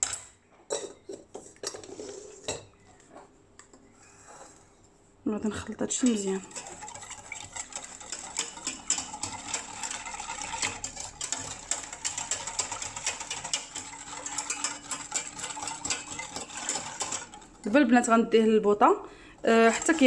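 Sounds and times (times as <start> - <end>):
whisk clicking and scraping pan: 5.9 - 18.4, 19.4 - 20.0
liquid swishing: 6.0 - 17.8, 19.4 - 20.0.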